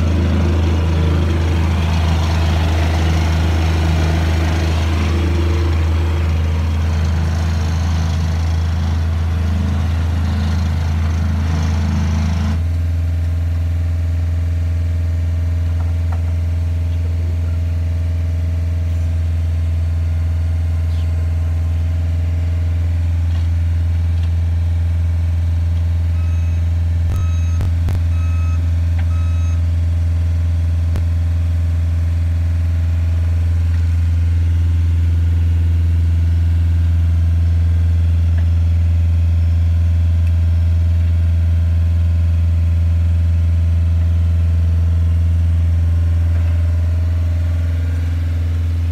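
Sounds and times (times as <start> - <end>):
diesel engine idling: 0.0 - 48.9
electronic beeps: 26.2 - 29.6.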